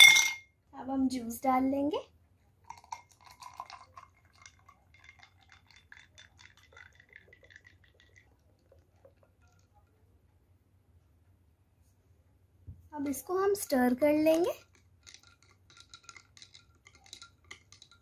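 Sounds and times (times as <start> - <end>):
ice clinking against glass: 0.0 - 0.4, 15.0 - 18.0
juice trickling into a glass: 2.6 - 9.9.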